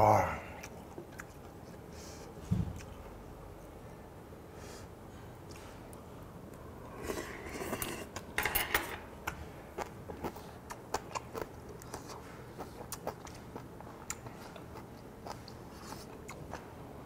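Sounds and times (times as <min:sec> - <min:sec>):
person slurping soup: 0:06.9 - 0:08.2.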